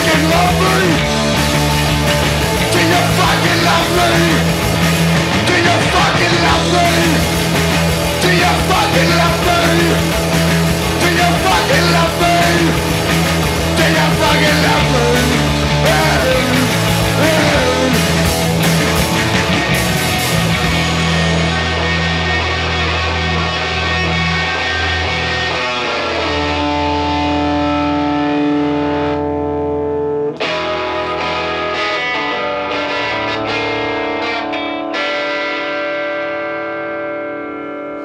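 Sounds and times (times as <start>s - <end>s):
drum kit: 0.0s - 22.7s
electric bass: 0.0s - 35.7s
electric guitar: 0.0s - 38.0s.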